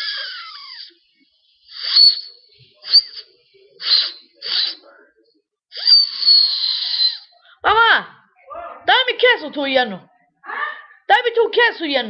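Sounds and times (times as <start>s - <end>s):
breathy finger whistles: 1.7s - 4.9s, 5.7s - 7.4s.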